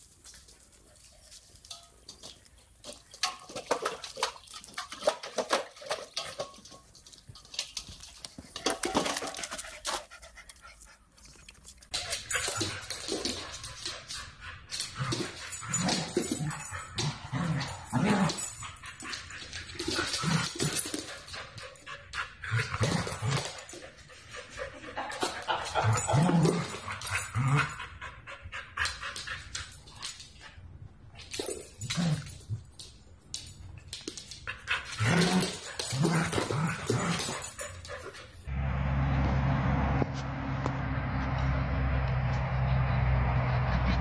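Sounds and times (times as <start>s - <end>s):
puppy lapping water: 2.9s - 6.8s, 7.5s - 12.8s.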